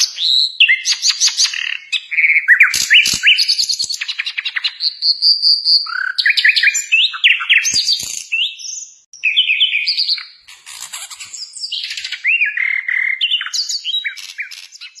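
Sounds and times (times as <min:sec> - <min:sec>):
nightingale singing: 0:00.0 - 0:15.0.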